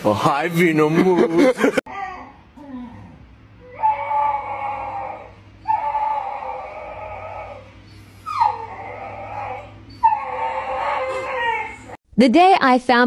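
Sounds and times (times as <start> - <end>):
small dog whining: 1.9 - 12.0.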